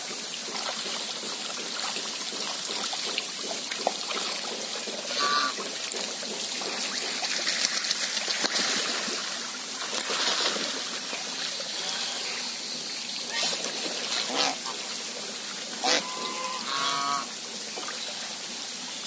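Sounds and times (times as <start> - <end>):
water trickling into pond: 0.0 - 19.0
goose call: 5.1 - 5.6, 13.3 - 14.8, 15.8 - 17.3
geese splashing: 5.1 - 5.7, 13.3 - 18.2.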